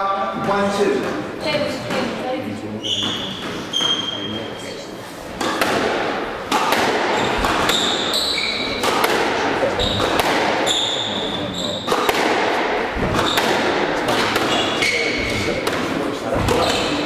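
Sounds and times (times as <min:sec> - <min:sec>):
squash ball striking rackets and walls: 0:00.4 - 0:02.2, 0:02.9 - 0:04.4, 0:05.2 - 0:17.0
shoes squeaking on wooden floor: 0:01.4 - 0:05.5, 0:07.1 - 0:12.1, 0:13.0 - 0:15.6, 0:16.3 - 0:17.0.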